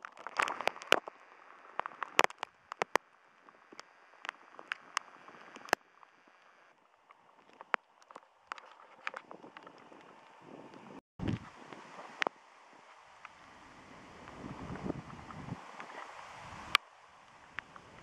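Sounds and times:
hail pellets ticking: 0:00.0 - 0:03.0
hiss of falling precipitation: 0:11.4 - 0:18.0.

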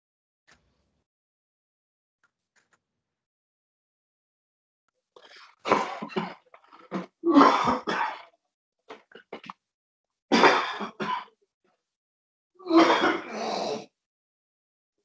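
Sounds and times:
person coughing: 0:05.6 - 0:08.3, 0:10.3 - 0:11.3, 0:12.7 - 0:13.5
person clearing throat: 0:05.7 - 0:08.3, 0:10.3 - 0:11.3, 0:12.7 - 0:13.8.

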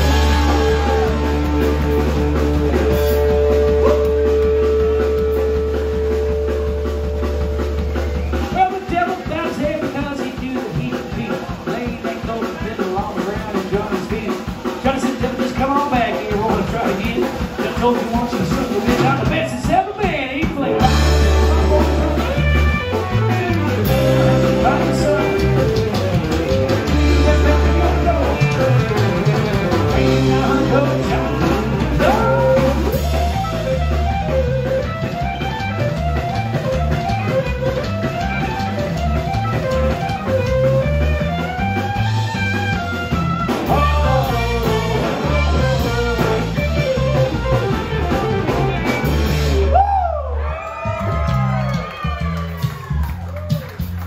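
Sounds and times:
electric guitar lead runs: 0:00.0 - 0:10.0, 0:20.7 - 0:49.7
drum kit: 0:00.0 - 0:54.0
upright bass: 0:00.0 - 0:54.0.

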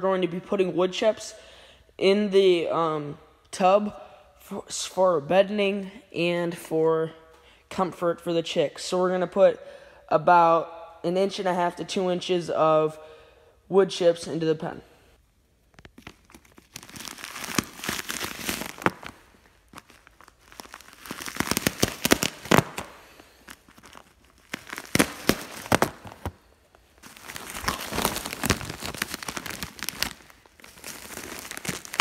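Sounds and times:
plastic wrapping tearing: 0:15.6 - 0:32.0.

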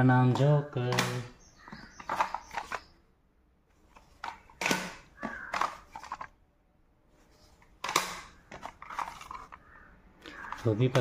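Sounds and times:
plastic cassette cases clacking: 0:00.9 - 0:02.9, 0:03.9 - 0:06.4, 0:07.6 - 0:11.0.

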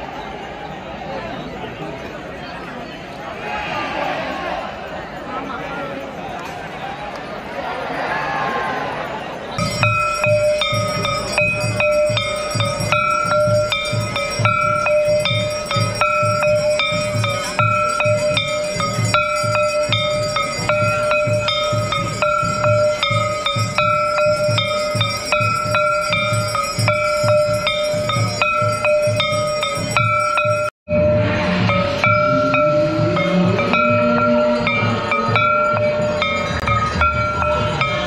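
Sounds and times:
temple bells ringing: 0:08.6 - 0:38.0
low drum beat: 0:09.6 - 0:38.0.

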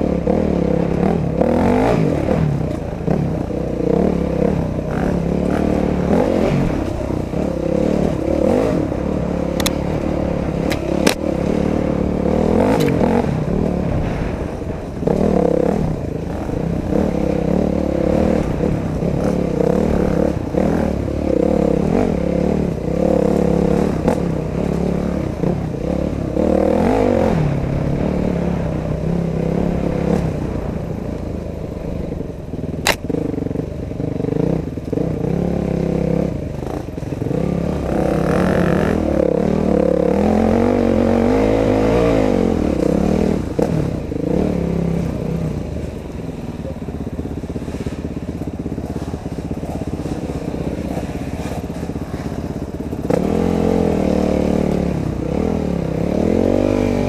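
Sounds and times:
dirt bike engine revving: 0:00.0 - 0:31.2, 0:31.9 - 0:57.0
sharp snap: 0:10.6 - 0:11.3, 0:12.7 - 0:13.0, 0:32.8 - 0:33.2.

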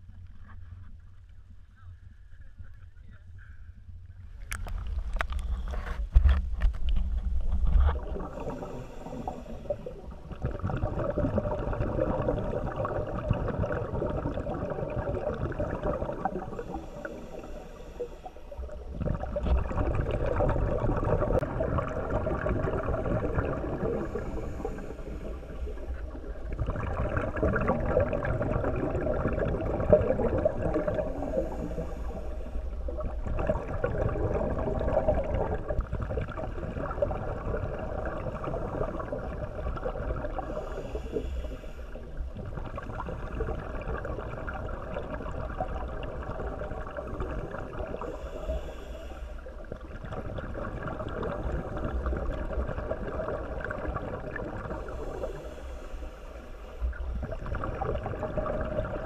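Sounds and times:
muffled underwater rushing: 0:00.0 - 0:59.0
faint hiss: 0:07.4 - 0:10.4, 0:15.2 - 0:19.6, 0:30.0 - 0:33.5, 0:40.2 - 0:43.9, 0:45.8 - 0:50.0, 0:54.3 - 0:57.4.

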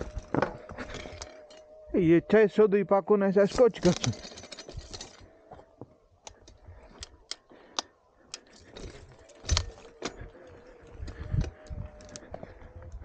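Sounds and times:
mountain bike clicking and rattling: 0:03.5 - 0:05.3, 0:06.2 - 0:13.0.

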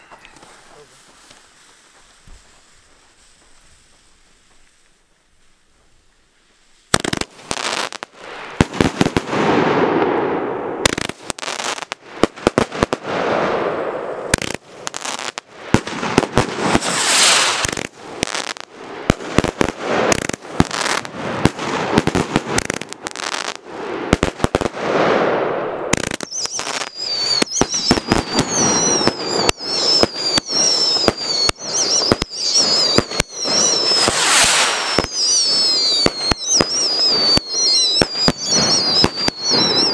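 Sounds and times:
fireworks rockets banging: 0:06.9 - 0:39.9
rocket hissing: 0:16.1 - 0:18.6, 0:25.8 - 0:39.9
descending whistles: 0:26.1 - 0:39.9.

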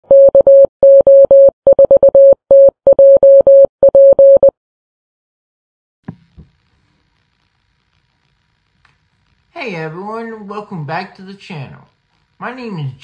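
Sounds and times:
morse code beeps: 0:00.1 - 0:04.5.

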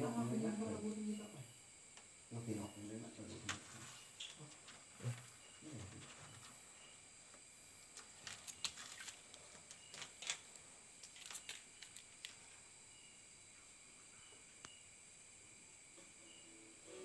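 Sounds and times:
lizard claws clicking and scraping: 0:08.0 - 0:12.4.

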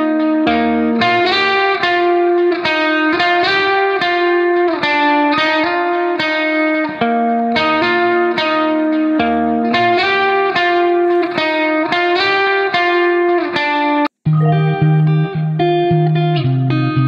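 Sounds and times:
guitar plucking notes: 0:00.0 - 0:17.0.

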